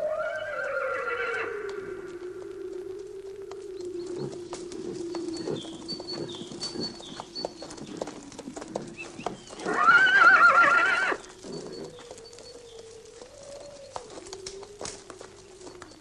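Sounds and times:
hoofbeats: 0.0 - 16.0
horse neighing: 9.6 - 11.8.

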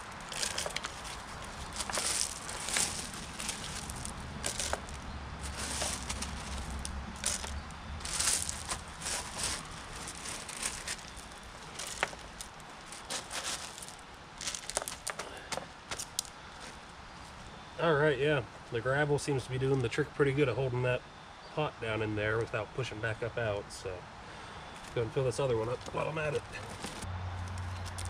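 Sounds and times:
gravel crunching and rattling: 0.0 - 17.3, 24.8 - 28.0.

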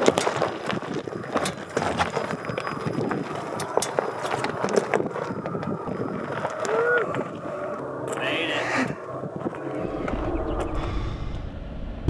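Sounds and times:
stones clicking and cracking: 0.0 - 8.2
tyres crunching over gravel: 0.0 - 9.8.

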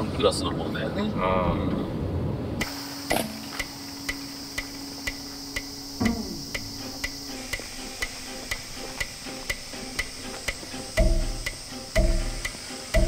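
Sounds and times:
ticking pulse: 2.6 - 13.0
low drone music: 4.1 - 13.0.

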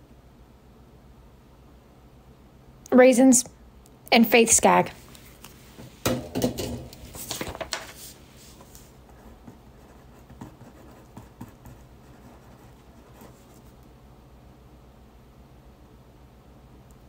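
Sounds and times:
paper rustling: 6.9 - 9.0
pen scratching on paper: 9.1 - 13.8.

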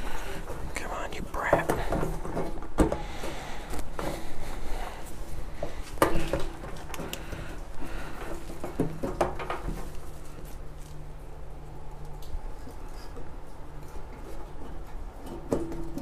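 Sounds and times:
light clicks and knocks of handled parts: 1.4 - 11.0.

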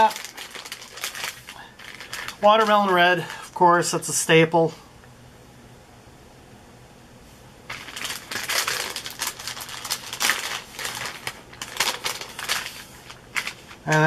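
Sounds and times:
plastic bags crinkling: 0.0 - 3.9, 7.7 - 14.0.

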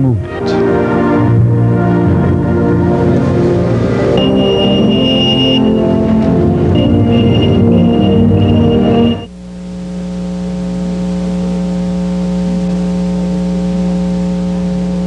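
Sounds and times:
music: 0.0 - 9.3
steady low hum: 0.0 - 15.0.

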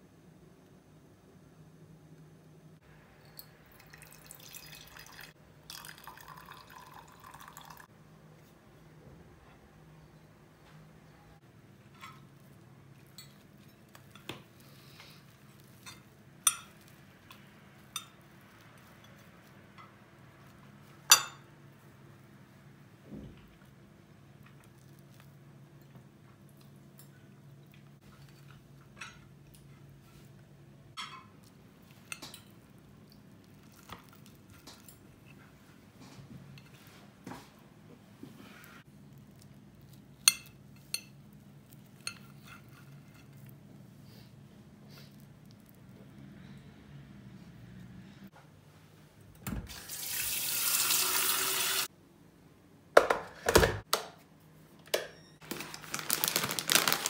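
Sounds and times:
cutlery clinking on ceramic plate: 31.0 - 31.4
cutlery scraping a plate: 42.0 - 43.5.

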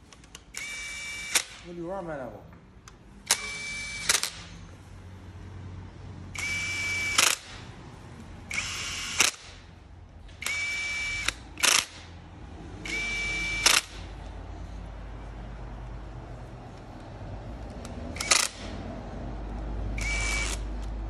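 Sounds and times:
drill clicking: 0.2 - 1.6, 3.3 - 4.5, 6.4 - 7.6, 8.5 - 9.6, 10.4 - 12.1, 12.8 - 14.0, 17.8 - 18.8, 20.0 - 20.9
cordless drill whining: 0.5 - 1.6, 3.3 - 4.4, 6.3 - 7.6, 8.5 - 9.6, 10.4 - 12.0, 12.8 - 14.0, 18.2 - 18.7, 20.0 - 20.7.

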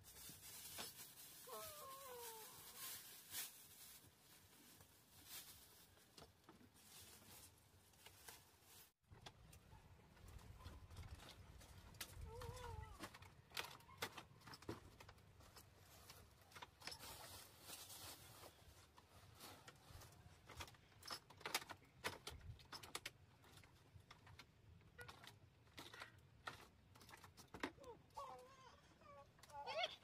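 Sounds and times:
rustling: 0.0 - 28.4.

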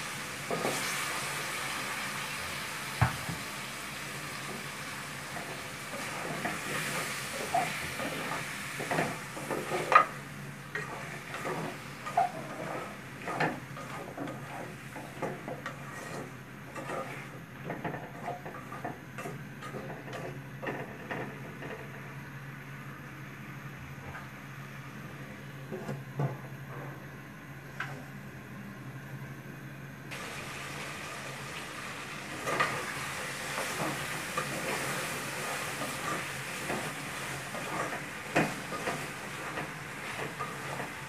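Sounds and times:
faint frying sizzle: 0.0 - 23.6, 30.1 - 41.0
spatula scraping metal pot: 10.7 - 20.9.

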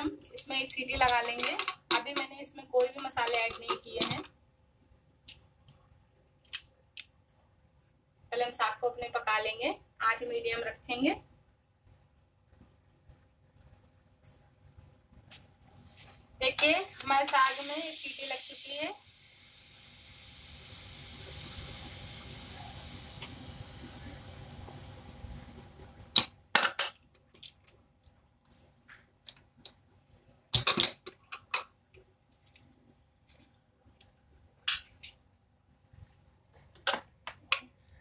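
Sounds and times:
steam hissing from pressure cooker: 17.3 - 25.4.

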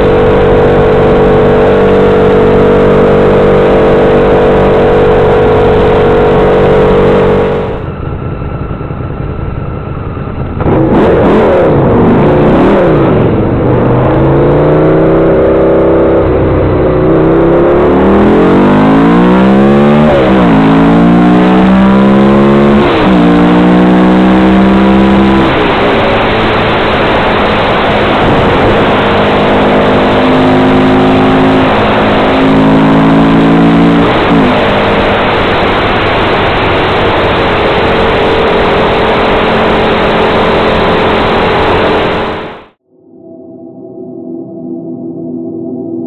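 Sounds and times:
motorcycle engine at speed: 0.0 - 42.8
wind rush on microphone: 25.0 - 32.4, 34.0 - 42.6.

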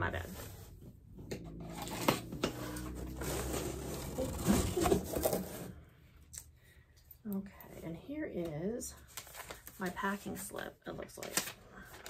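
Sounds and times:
cardboard scraping and rustling: 0.2 - 5.8.

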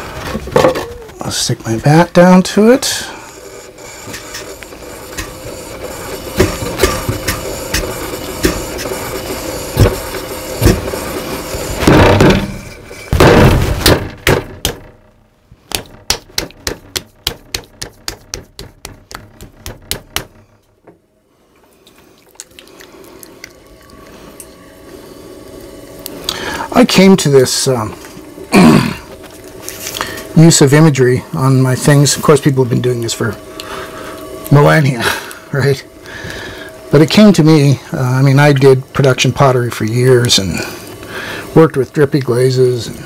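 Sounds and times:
clay slapped on potter's wheel: 15.7 - 20.4.

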